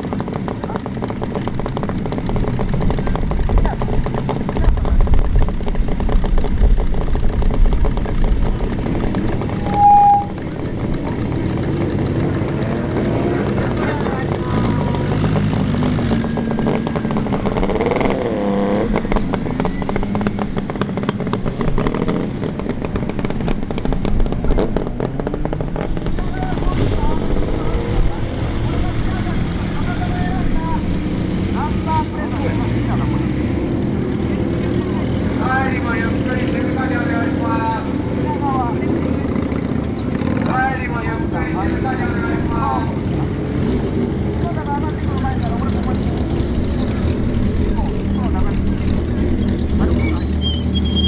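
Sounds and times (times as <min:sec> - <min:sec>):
motorcycle engines revving: 0:00.0 - 0:51.0
loud beep: 0:09.5 - 0:10.4, 0:50.0 - 0:51.0.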